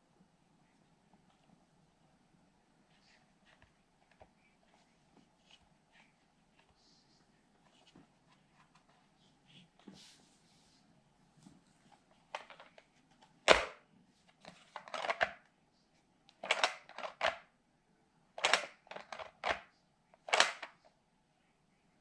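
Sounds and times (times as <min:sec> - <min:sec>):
plastic toy lid clicking: 0:16.4 - 0:17.4, 0:18.4 - 0:19.6, 0:20.2 - 0:20.8.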